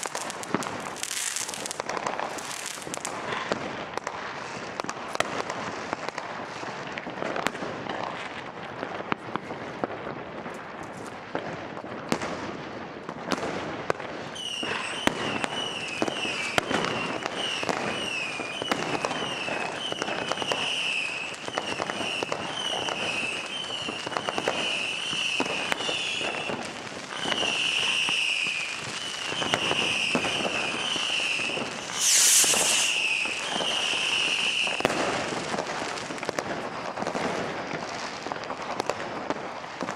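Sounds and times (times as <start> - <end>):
fireworks bangs and pops: 0.0 - 39.9
loud hiss: 30.0 - 34.8.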